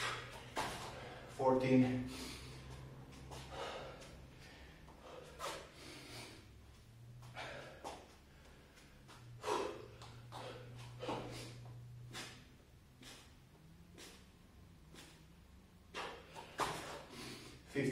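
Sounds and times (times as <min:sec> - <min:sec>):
man panting heavily: 0:00.0 - 0:06.6, 0:07.2 - 0:12.4, 0:13.0 - 0:13.4
low steady hum: 0:00.0 - 0:17.9.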